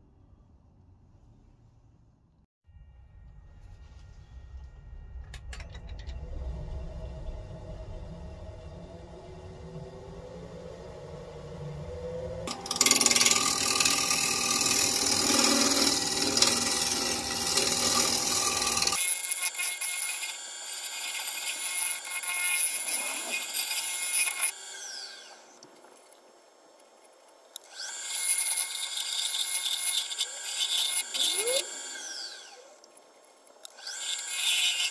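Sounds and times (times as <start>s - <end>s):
lathe tool scraping wood: 6.1s - 25.5s, 27.8s - 32.6s, 33.8s - 34.9s.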